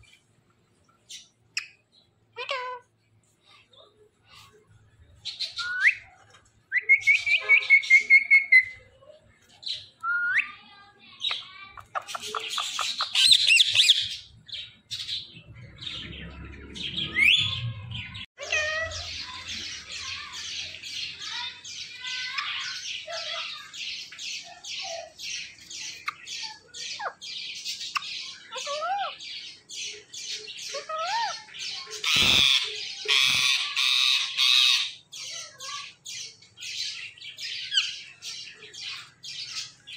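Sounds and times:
parakeets calling: 2.4s - 2.8s, 9.7s - 39.9s.

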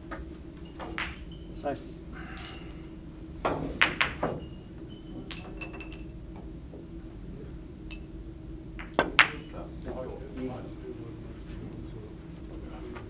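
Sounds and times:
steady low hum: 0.0s - 13.0s
cue striking ball: 0.1s - 1.5s, 3.4s - 6.1s, 8.8s - 9.5s
billiard balls clicking: 0.1s - 1.7s, 2.3s - 2.8s, 3.4s - 6.5s, 8.7s - 9.5s.

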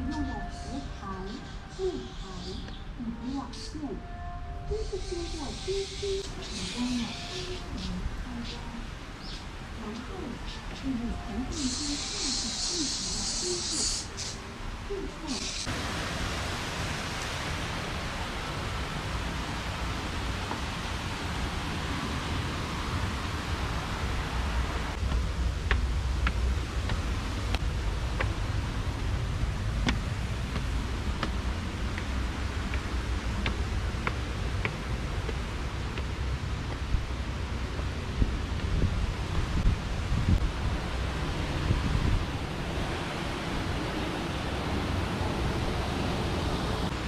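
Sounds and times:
high hiss: 4.7s - 8.8s, 9.8s - 21.4s
water rushing over rocks: 15.6s - 47.0s
wind buffeting microphone: 15.6s - 47.0s
footsteps on stone path: 25.0s - 39.8s.

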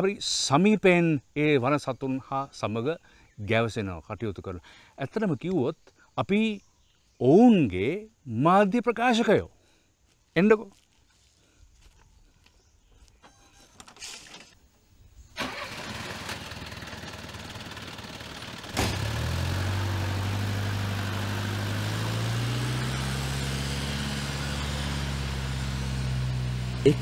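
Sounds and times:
starter motor cranking: 15.4s - 19.8s
engine running steadily: 15.4s - 27.0s.

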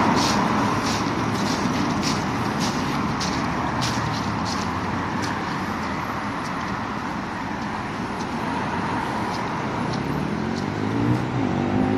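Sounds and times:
traffic on wet road: 0.0s - 11.9s
vehicle engine accelerating: 9.0s - 11.9s.

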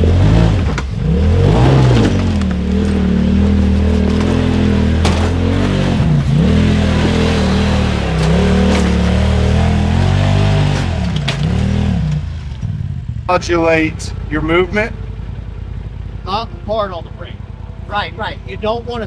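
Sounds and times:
off-road vehicle engine under load: 0.0s - 19.0s
sharp knocks: 4.1s - 5.7s.

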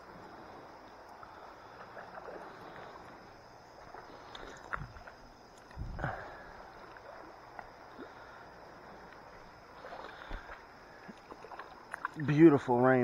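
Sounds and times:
river water flowing: 0.0s - 13.0s
faint clicks: 4.2s - 5.8s.

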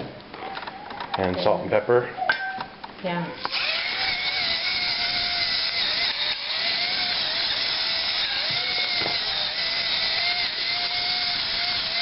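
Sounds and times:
stick blender motor whine: 3.4s - 12.0s.

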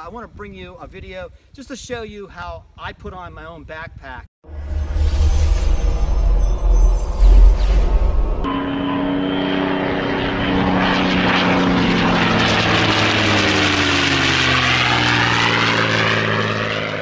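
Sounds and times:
droning hum dropping in pitch: 4.4s - 17.0s.

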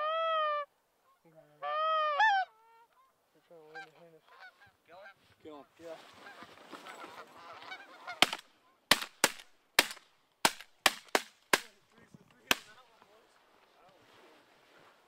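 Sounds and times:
geese honking: 0.0s - 5.2s, 6.1s - 8.9s
shotgun shots: 8.2s - 11.8s.

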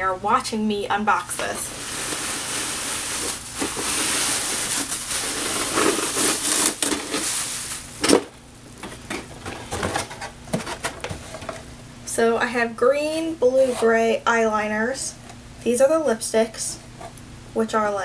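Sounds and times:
plastic wrap crinkling and tearing: 1.4s - 8.4s.

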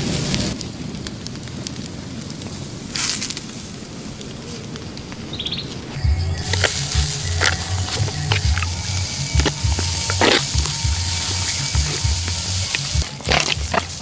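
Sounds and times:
wood fire crackling: 0.0s - 14.0s
bird chirps: 5.3s - 13.7s
low hum with thumps: 6.0s - 14.0s.

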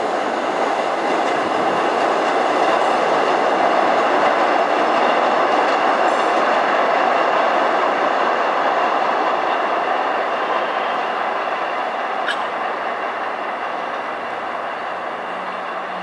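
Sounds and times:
subway trains rumbling: 0.0s - 16.0s.

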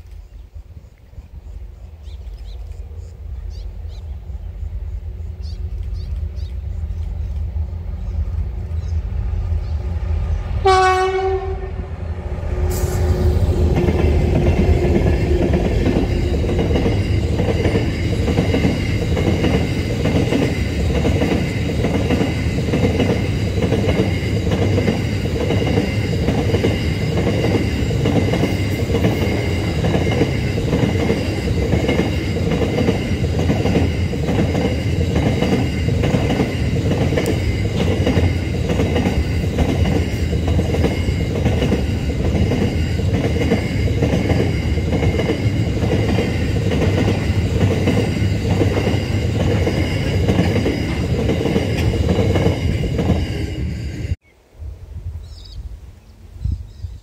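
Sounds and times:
train wagons rumbling: 1.2s - 54.2s
train horn blast: 10.6s - 13.4s
high ringing of wheels on rails: 12.2s - 54.2s.

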